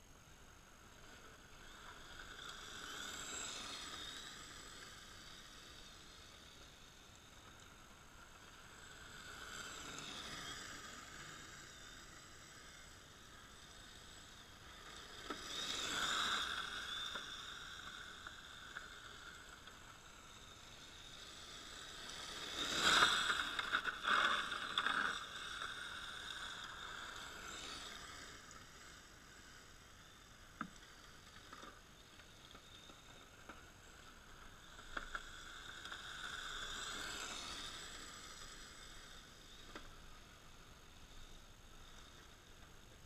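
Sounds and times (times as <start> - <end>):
electric rc car whining: 0.1 - 43.0.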